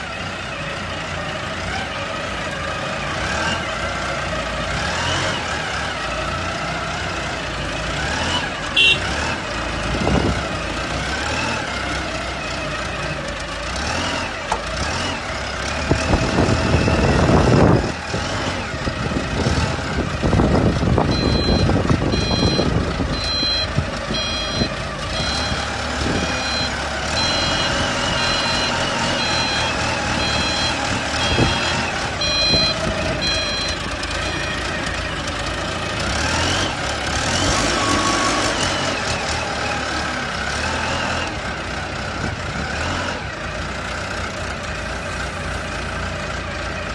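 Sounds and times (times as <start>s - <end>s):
truck engine running: 0.0s - 46.9s
reversing alarm beeping: 21.1s - 34.7s.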